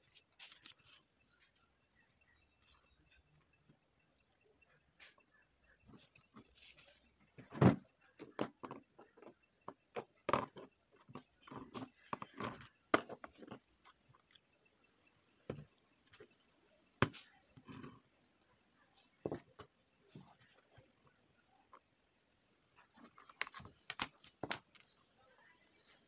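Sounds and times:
faint high-pitched hiss: 0:00.0 - 0:26.0.

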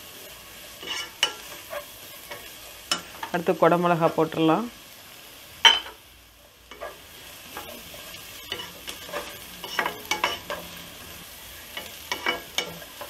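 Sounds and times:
wooden spatula scraping a pan: 0:00.0 - 0:03.4, 0:06.7 - 0:13.0
vegetables sizzling: 0:00.0 - 0:13.0.

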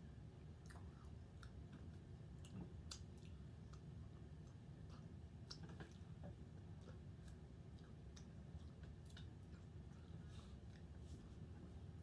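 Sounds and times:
wet mouth clicks while chewing: 0:00.6 - 0:09.7.

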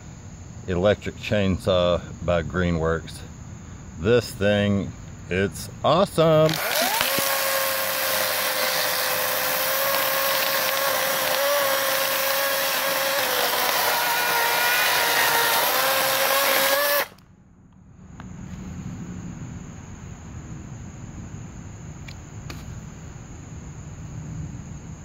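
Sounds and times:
electric chainsaw whine: 0:06.2 - 0:17.3.

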